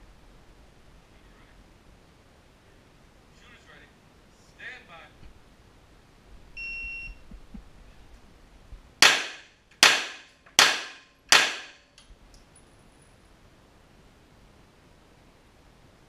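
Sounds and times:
pistol shots ringing indoors: 0:09.0 - 0:12.0.

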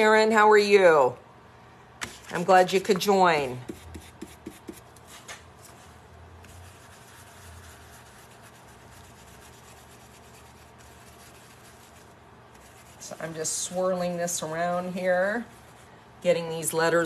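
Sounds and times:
bristles rubbing on canvas: 0:03.7 - 0:15.9.

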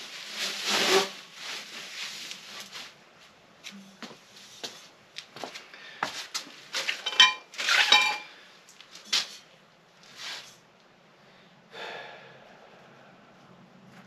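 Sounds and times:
metal parts clinking: 0:07.0 - 0:08.2.

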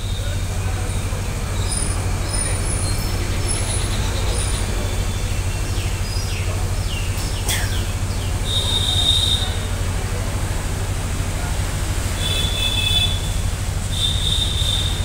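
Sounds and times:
birds chirping: 0:00.0 - 0:10.2
low background rumble: 0:00.0 - 0:15.0
high bird whistle: 0:08.3 - 0:09.7, 0:13.9 - 0:15.0.

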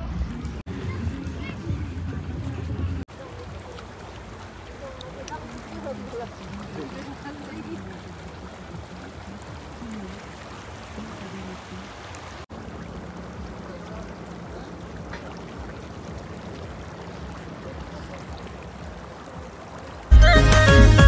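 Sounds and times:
music with singing: 0:20.1 - 0:21.0.

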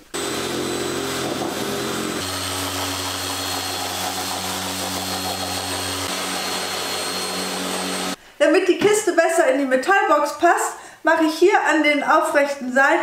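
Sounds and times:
sander motor hum: 0:00.0 - 0:08.2.

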